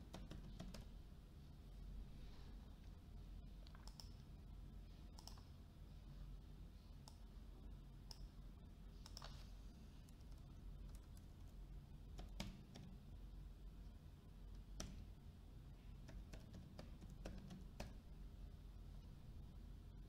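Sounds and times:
low steady hum: 0:00.0 - 0:20.0
computer mouse clicks: 0:00.1 - 0:00.9, 0:03.6 - 0:04.3, 0:05.1 - 0:05.5, 0:07.0 - 0:07.2, 0:08.0 - 0:08.3, 0:09.0 - 0:09.4, 0:10.0 - 0:13.0, 0:14.5 - 0:15.1, 0:16.0 - 0:18.0.

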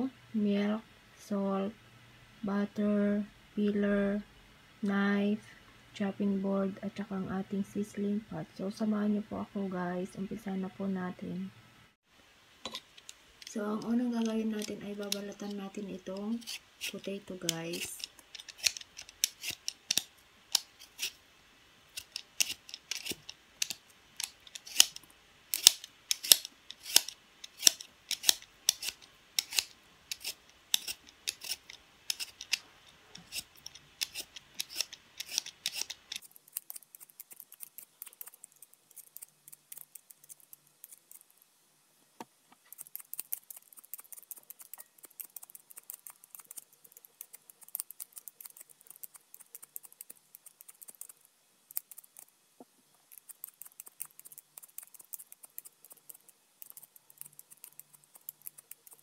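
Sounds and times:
peeler scraping potato skin: 0:13.8 - 0:21.2, 0:21.9 - 0:41.4, 0:42.6 - 0:52.3, 0:53.1 - 0:59.0.

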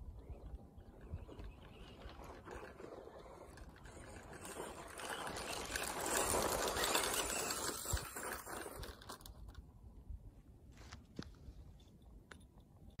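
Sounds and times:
rc car driving past on dirt: 0:00.1 - 0:09.6.

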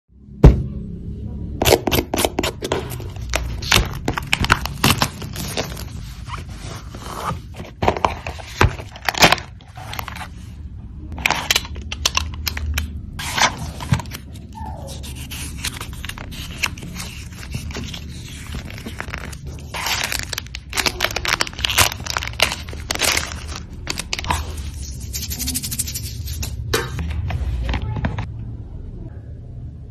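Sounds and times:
shrink wrap tearing: 0:01.6 - 0:06.4, 0:11.2 - 0:26.6
cardboard and paper crinkling: 0:01.8 - 0:28.3.

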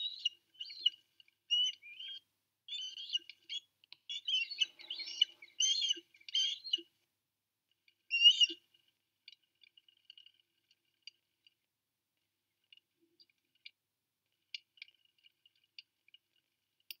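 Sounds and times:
osprey high chirping call: 0:00.0 - 0:06.8, 0:08.1 - 0:08.6
faint bird chirps and clicks: 0:00.0 - 0:06.9, 0:07.8 - 0:11.6.

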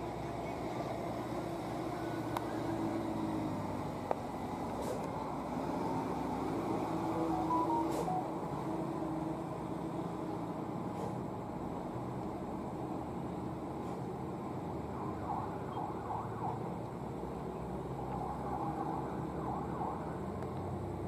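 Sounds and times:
heavy truck approaching: 0:00.0 - 0:14.9
road traffic passing: 0:00.0 - 0:21.0
brief high tones: 0:07.2 - 0:08.6.

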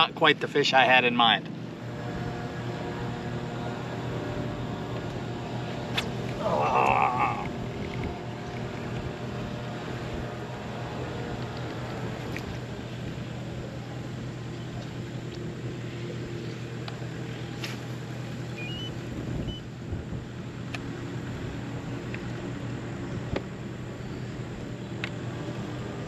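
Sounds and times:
electric boat motor humming: 0:01.1 - 0:26.0.

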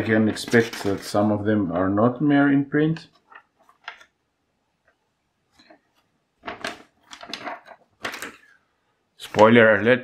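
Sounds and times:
catalogue pages rustling: 0:00.0 - 0:01.4, 0:05.5 - 0:08.6, 0:09.2 - 0:10.0.

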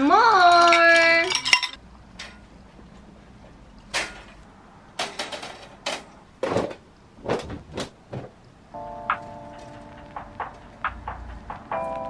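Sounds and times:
metal drying rack clacking: 0:00.4 - 0:02.4, 0:03.9 - 0:04.4, 0:05.0 - 0:08.2.

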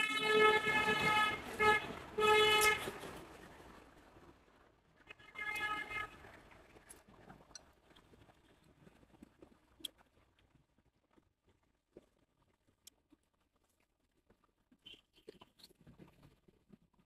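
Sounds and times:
vehicle horn toot: 0:00.0 - 0:02.9, 0:05.2 - 0:06.2.

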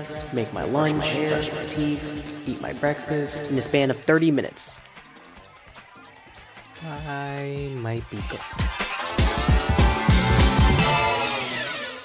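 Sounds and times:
electronic music with sliding bass: 0:00.0 - 0:12.0.

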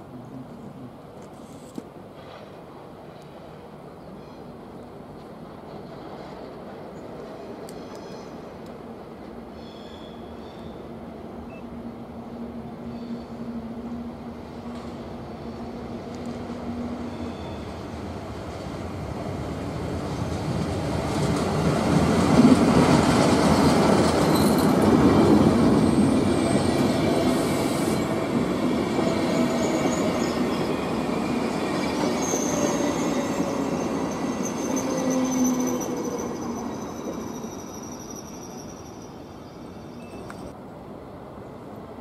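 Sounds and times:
train wheels clattering on rails: 0:20.0 - 0:36.2
high-pitched wheel squeals: 0:31.8 - 0:40.5.

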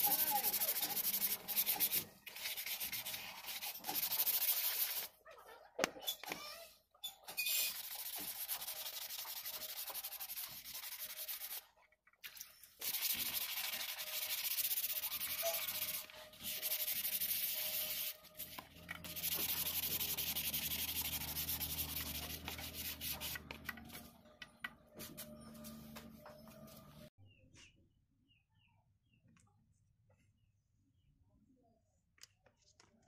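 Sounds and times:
sandpaper scratching strokes: 0:00.0 - 0:05.1, 0:07.5 - 0:11.7, 0:12.8 - 0:23.6.

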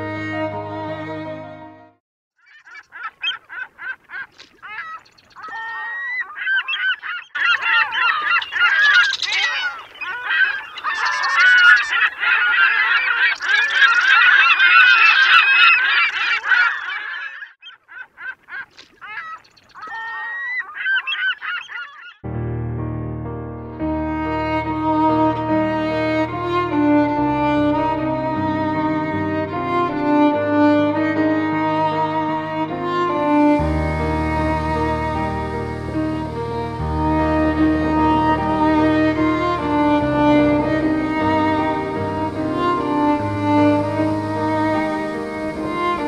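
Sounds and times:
gulls calling: 0:02.4 - 0:22.2, 0:33.3 - 0:46.0.

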